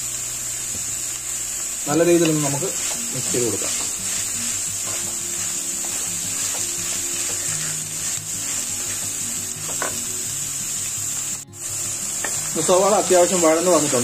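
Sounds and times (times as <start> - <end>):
onions sizzling in oil: 0.0 - 14.0
wooden spatula scraping: 2.2 - 9.0.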